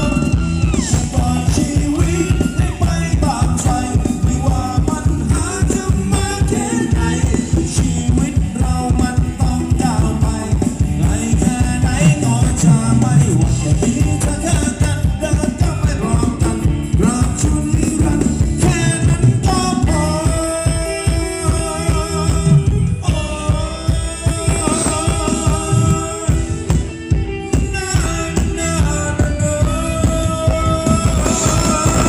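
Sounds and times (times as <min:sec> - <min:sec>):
live band dance music: 0:00.0 - 0:32.0
person singing: 0:00.0 - 0:32.0
steady drum beat: 0:00.0 - 0:32.0.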